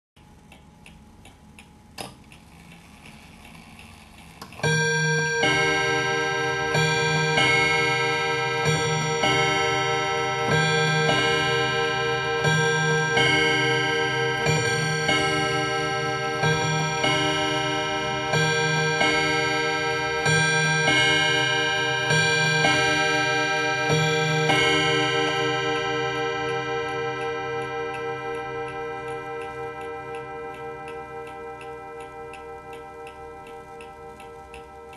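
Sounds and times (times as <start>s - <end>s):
clock gongs striking ding-dong: 4.6s - 34.9s.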